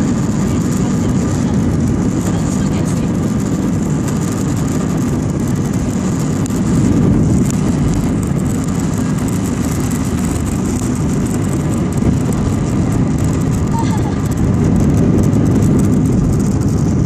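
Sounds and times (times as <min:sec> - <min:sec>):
jet engines at take-off power: 0:00.0 - 0:17.0
runway rumble: 0:00.0 - 0:17.0.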